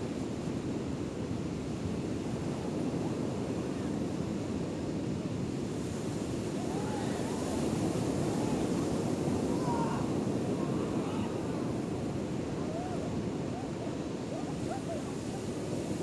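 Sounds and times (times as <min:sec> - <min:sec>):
wind rumbling on microphone: 0:00.1 - 0:16.0
ocean surf breaking: 0:05.6 - 0:16.0.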